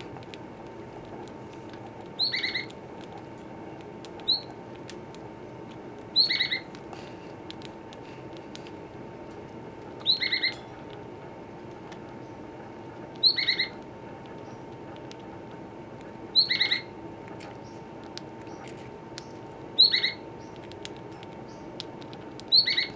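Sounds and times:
bird nibbling cork ticks: 0.0 - 16.4, 17.2 - 22.9
bird chirping: 2.2 - 2.7, 4.2 - 4.6, 6.1 - 6.7, 10.0 - 10.7, 13.2 - 13.8, 16.3 - 16.9, 17.6 - 21.7, 22.5 - 22.9.

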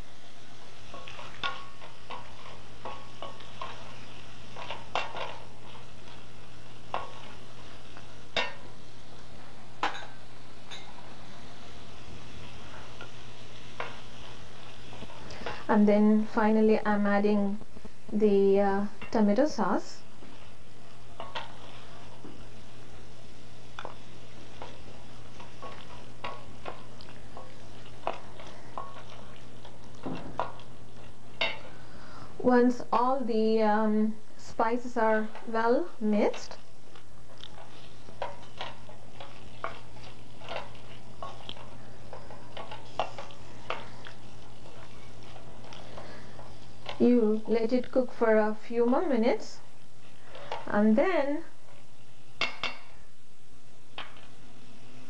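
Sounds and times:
spoon clinking and scraping pan: 0.9 - 5.8, 9.8 - 11.1, 37.6 - 47.0.

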